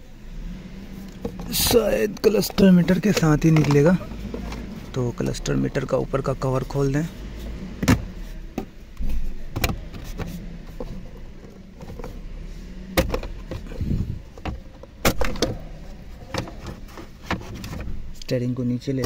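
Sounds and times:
plastic rubbing: 0:06.5 - 0:18.2.

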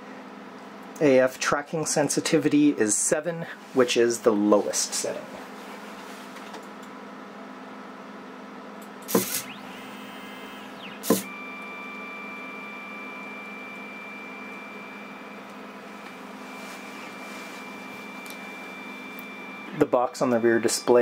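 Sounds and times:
low machine hum: 0:00.0 - 0:21.0
stepper motors whining: 0:09.1 - 0:21.0.

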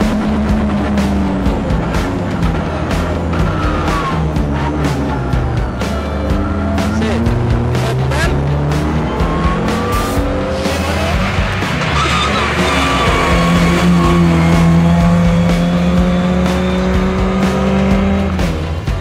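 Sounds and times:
background music: 0:00.0 - 0:19.0
rally car engine revving: 0:00.0 - 0:19.0
tyres squealing: 0:01.7 - 0:14.9.

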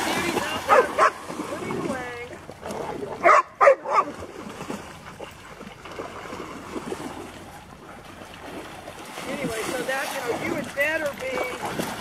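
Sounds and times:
dogs splashing through water: 0:00.0 - 0:12.0
dog barking: 0:00.7 - 0:01.2, 0:03.2 - 0:04.1.

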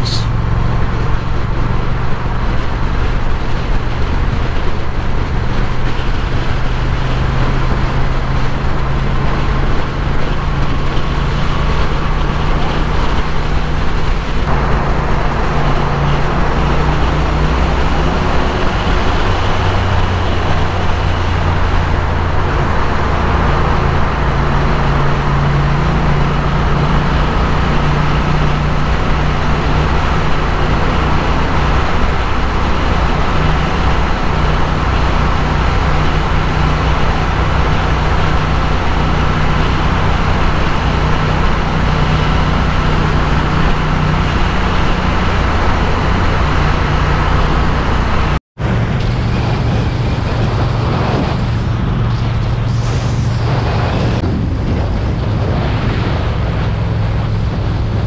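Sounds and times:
motorcycle engine cruising: 0:00.0 - 0:58.0
wind noise: 0:00.0 - 0:58.0.

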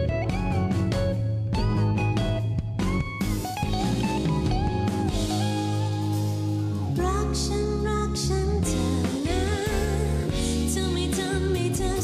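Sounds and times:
drums: 0:00.0 - 0:12.0
guitar: 0:00.0 - 0:12.0
woman singing pop song: 0:07.0 - 0:12.0.

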